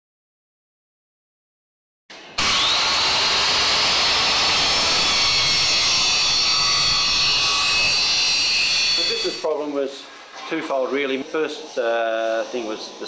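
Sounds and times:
angle grinder whining: 0:02.1 - 0:09.6.

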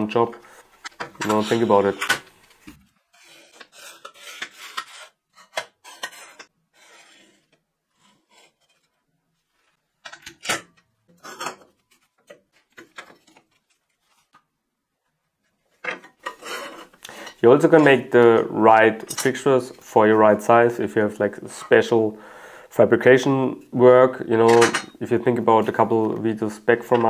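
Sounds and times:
scraping and rubbing on metal table: 0:03.0 - 0:09.8, 0:16.2 - 0:17.0.

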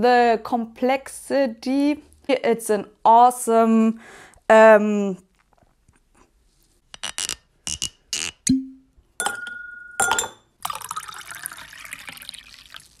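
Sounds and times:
glass clinks: 0:08.5 - 0:10.8
liquid poured into glass: 0:10.0 - 0:13.0.

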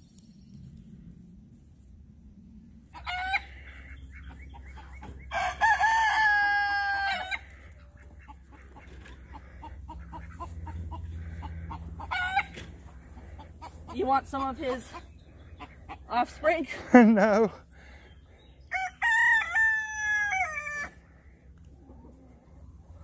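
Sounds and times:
chickens clucking: 0:02.9 - 0:06.0, 0:07.0 - 0:16.6, 0:21.6 - 0:23.0
rooster crowing: 0:05.3 - 0:07.5, 0:18.7 - 0:21.0.

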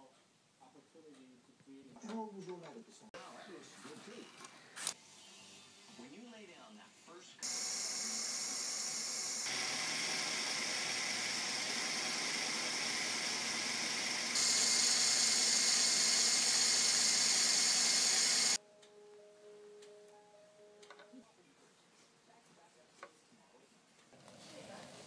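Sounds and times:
toy electric motors whining: 0:07.4 - 0:18.6.

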